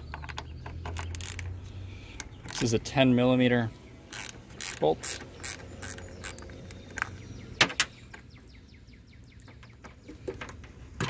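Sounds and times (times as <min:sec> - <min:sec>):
ratchet wrench clicking: 0:01.0 - 0:01.5, 0:04.1 - 0:07.1.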